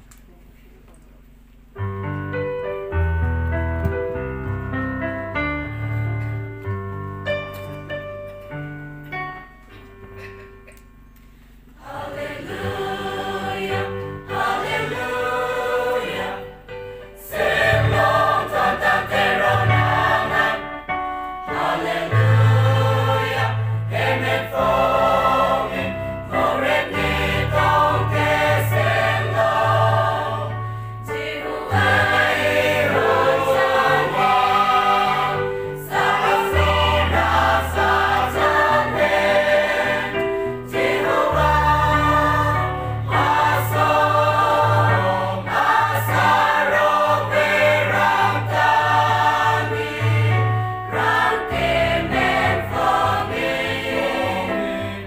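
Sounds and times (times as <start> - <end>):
mixed choir singing: 11.8 - 55.0.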